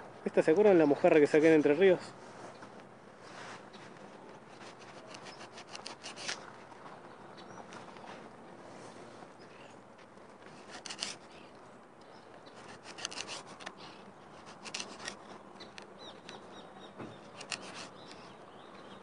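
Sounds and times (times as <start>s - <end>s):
knife rasping through fish: 4.6s - 6.4s, 10.6s - 11.2s, 12.6s - 15.2s.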